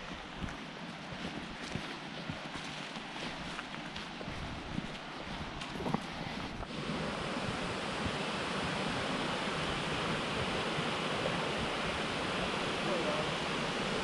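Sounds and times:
footsteps on leafy dirt trail: 0.0s - 6.8s
flowing creek water: 0.0s - 14.0s.

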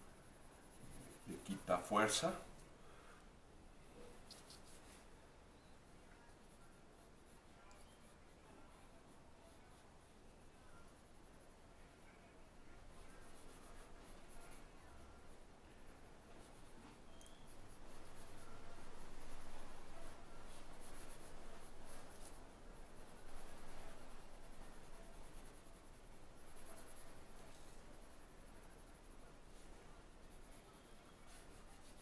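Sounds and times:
pencil scratching on paper: 0.0s - 2.5s, 4.0s - 5.1s, 12.8s - 15.5s, 16.2s - 32.0s.

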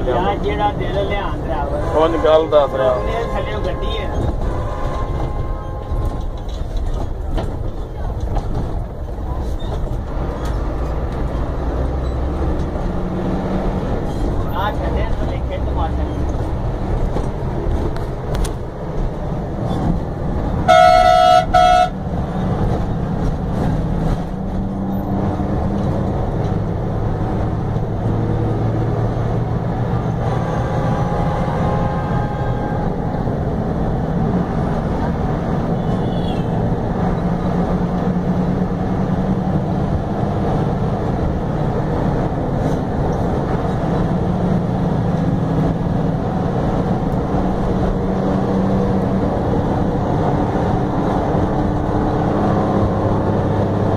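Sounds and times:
bus engine and road drone: 0.0s - 53.9s
bus horn blast: 1.6s - 6.4s, 20.6s - 22.0s, 30.2s - 33.2s, 35.8s - 36.6s.

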